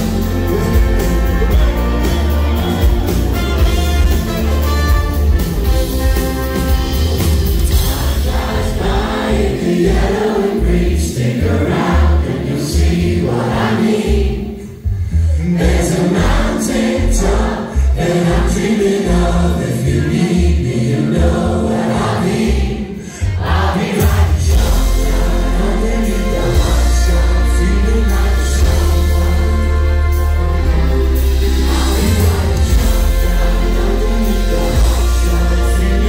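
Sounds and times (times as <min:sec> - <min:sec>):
crowd singing along: 0:00.0 - 0:06.0, 0:06.6 - 0:36.0
live band playing pop: 0:00.0 - 0:11.0, 0:23.2 - 0:36.0.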